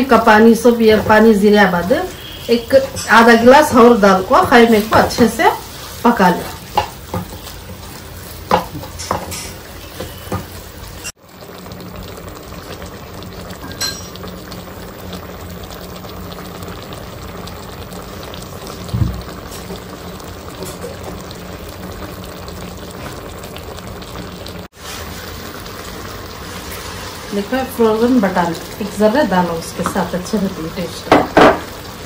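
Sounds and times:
meat simmering in water: 0:00.0 - 0:32.0
wooden spoon stirring in a pan: 0:02.6 - 0:11.0.

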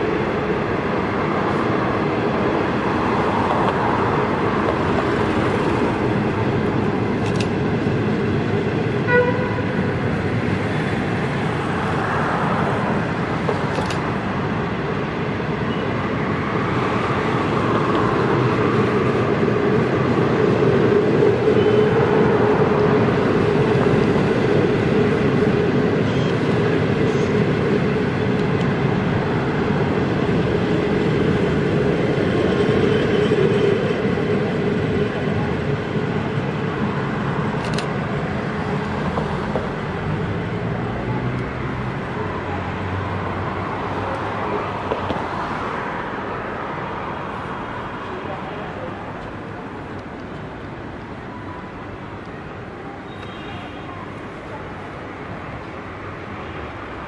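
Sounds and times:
train wheels rolling on rails: 0:00.0 - 0:57.0
train horn toot: 0:09.0 - 0:09.9.

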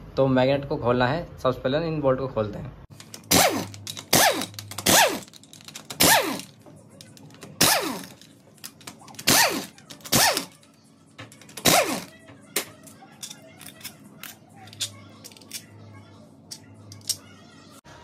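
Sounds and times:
impact wrench with falling whine: 0:03.2 - 0:06.6, 0:07.6 - 0:08.2, 0:11.6 - 0:12.1.

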